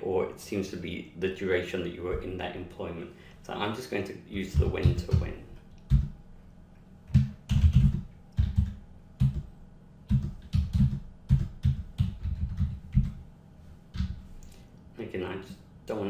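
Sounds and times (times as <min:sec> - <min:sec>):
typing on computer keyboard: 0:07.1 - 0:09.4, 0:10.1 - 0:13.2.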